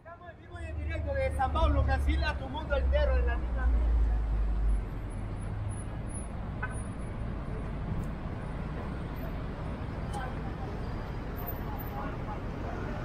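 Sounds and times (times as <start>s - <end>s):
traffic rumble: 0.0s - 13.0s.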